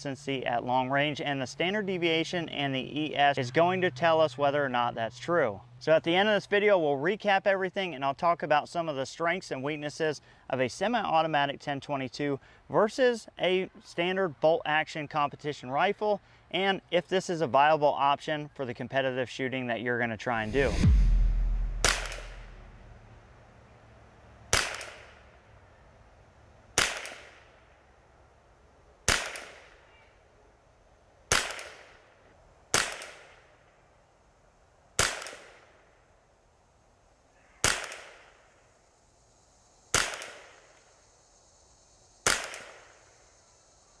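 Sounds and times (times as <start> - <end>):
rifle shots with echo: 20.6 - 22.7, 24.5 - 25.2, 29.1 - 29.8, 31.3 - 32.0, 32.7 - 33.4, 37.6 - 38.2, 39.9 - 40.6, 42.2 - 42.8.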